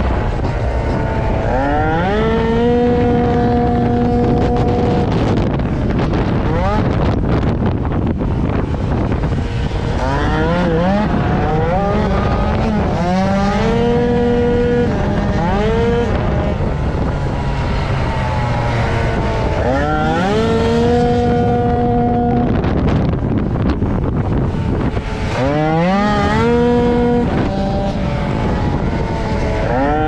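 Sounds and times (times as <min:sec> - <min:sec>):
scooter engine revving: 0:00.0 - 0:30.0
steady rush of noise: 0:00.0 - 0:30.0.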